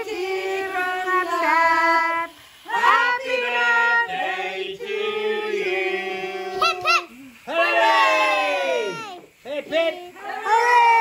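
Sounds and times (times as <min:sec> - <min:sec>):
group singing birthday song: 0:00.0 - 0:11.0.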